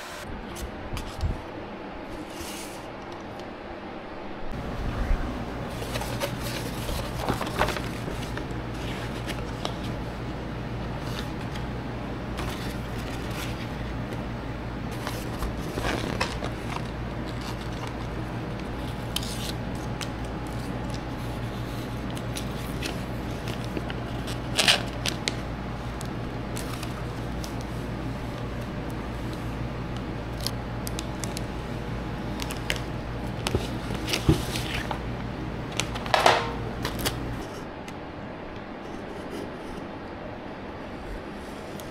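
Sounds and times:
steady low hum: 0.0 - 41.9
plastic film rustling and crackling: 5.7 - 10.0, 14.9 - 31.6, 32.3 - 35.0.

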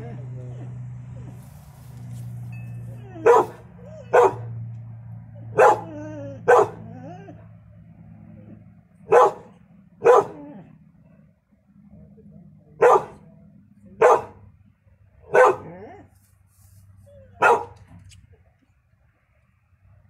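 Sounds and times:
dog barking: 3.0 - 4.6, 5.5 - 6.9, 9.0 - 10.6, 12.8 - 13.3, 14.0 - 14.5, 15.3 - 16.0, 17.4 - 17.8.

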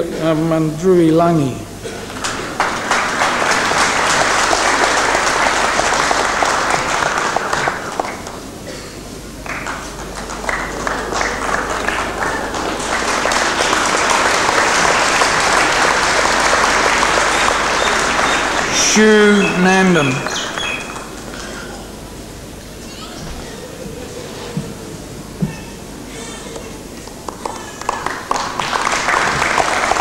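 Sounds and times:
audience applauding: 2.0 - 22.0, 26.5 - 30.0.

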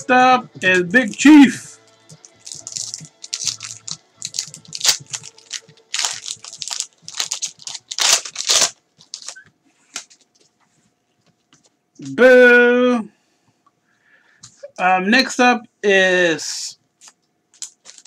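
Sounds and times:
foil wrapper tearing and crinkling: 2.2 - 10.2, 17.0 - 18.0.

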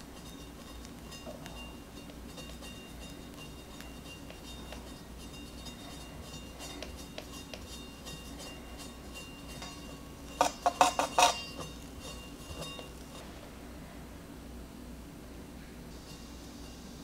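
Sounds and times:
spatula scraping cream: 0.1 - 13.3
metal tools clinking: 0.2 - 13.4.

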